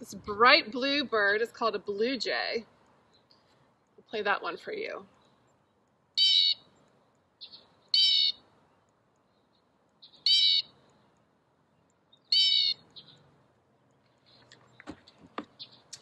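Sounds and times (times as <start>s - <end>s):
blue jay squawks from speaker: 6.2s - 6.6s, 8.0s - 8.4s, 10.2s - 10.7s, 12.3s - 12.8s.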